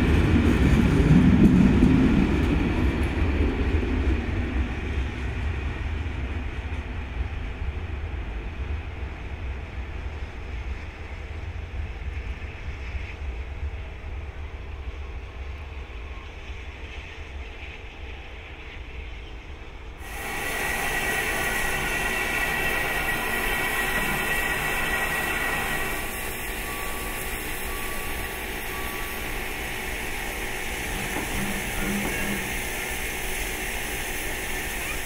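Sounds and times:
steam locomotive rumble: 0.0s - 35.0s
steam hissing: 20.0s - 35.0s.

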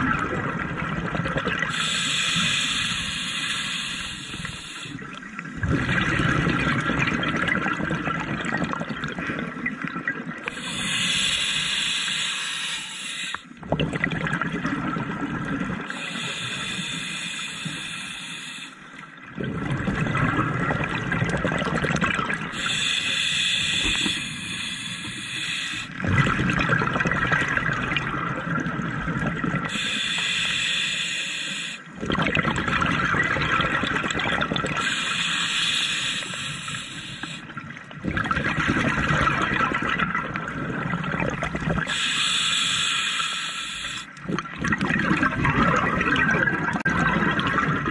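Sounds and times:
bubbling exhale: 1.4s - 7.6s, 10.5s - 14.6s, 19.4s - 27.8s
diver breathing through regulator: 1.7s - 5.0s, 10.5s - 13.5s, 15.9s - 18.8s, 22.5s - 26.0s, 29.7s - 31.9s, 34.8s - 37.5s, 41.8s - 44.2s.

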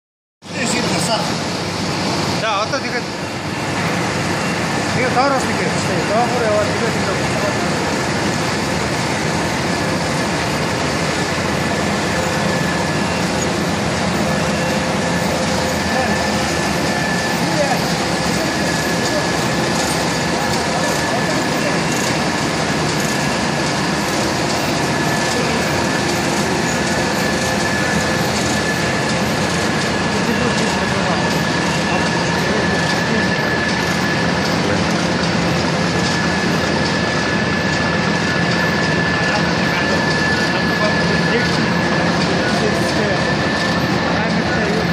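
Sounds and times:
high-pitched whine: 0.4s - 44.9s
printing press running: 0.4s - 44.9s
machine drone and hiss: 0.5s - 44.9s.

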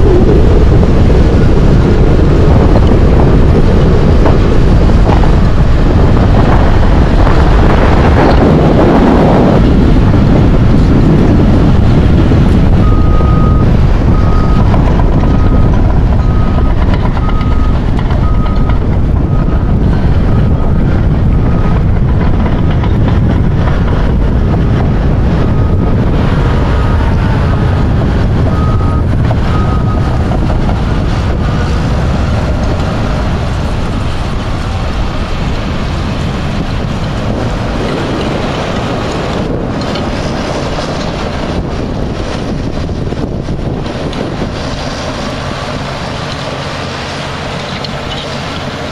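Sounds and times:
storm surf breaking on shore: 0.0s - 48.9s
wind buffeting microphone: 0.0s - 48.9s.

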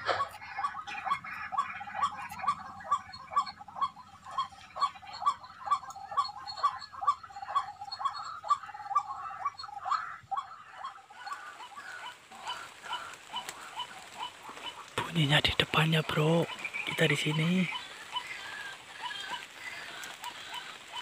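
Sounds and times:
animal calling rhythmically: 0.0s - 21.0s.

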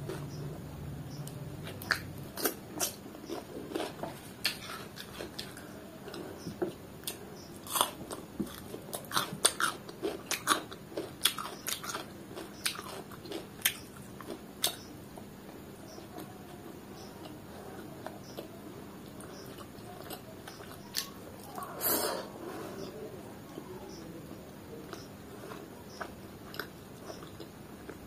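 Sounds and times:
wet chewing: 1.6s - 6.4s, 24.8s - 28.0s.

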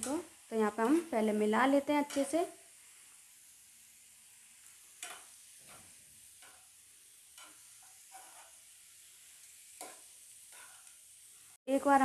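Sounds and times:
vegetables sizzling: 0.0s - 12.0s
spoon scraping frying pan: 2.0s - 2.4s, 4.6s - 11.4s.

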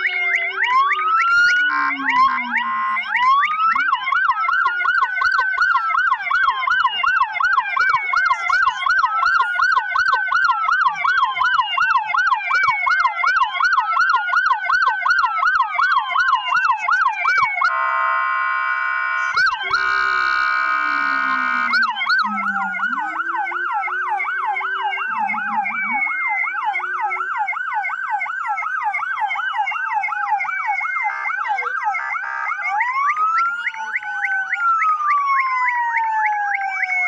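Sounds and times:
blaring horn tone: 0.0s - 3.2s, 17.6s - 28.3s
emergency vehicle sirens: 0.0s - 37.0s.

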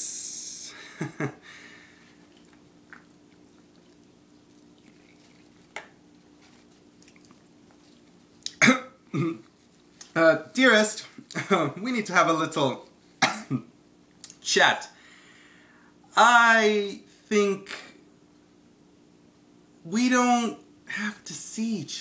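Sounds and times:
steady low hum: 0.0s - 22.0s
man coughing: 8.6s - 9.5s, 13.2s - 13.7s.

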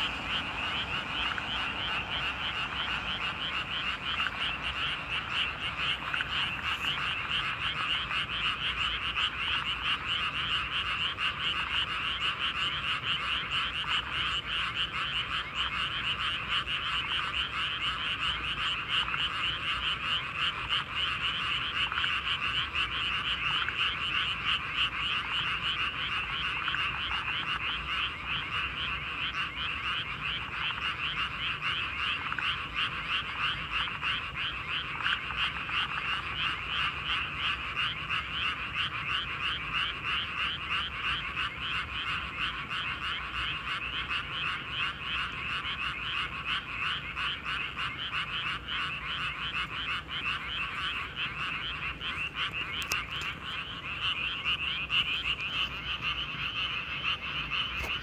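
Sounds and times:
frogs croaking in chorus: 0.0s - 58.0s.

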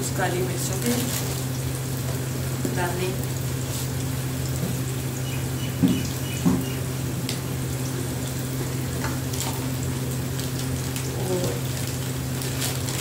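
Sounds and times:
onions sizzling in hot oil: 0.0s - 13.0s
steady low hum: 0.0s - 13.0s
short knocks: 5.8s - 6.8s.

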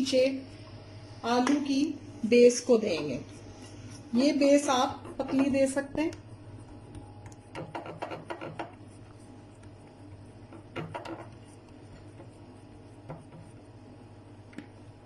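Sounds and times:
steady low hum: 0.0s - 15.0s
hand pressing food in dish: 7.3s - 8.8s.

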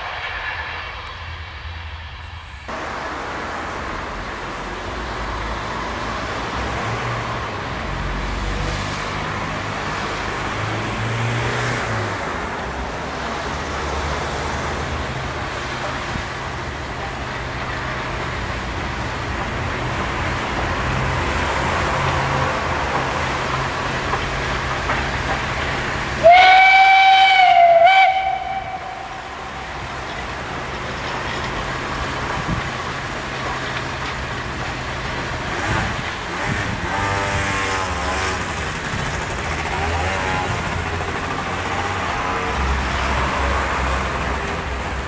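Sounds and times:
moving train running noise: 0.0s - 45.0s
steam whistle blast: 26.2s - 29.8s.

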